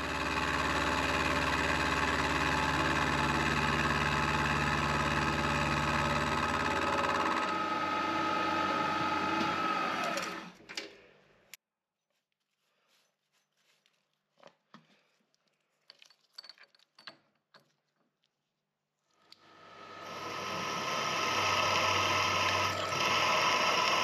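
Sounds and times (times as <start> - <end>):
milling machine cutting: 0.0 - 10.6, 19.5 - 24.0
spindle winding down: 0.0 - 10.6, 19.4 - 24.0.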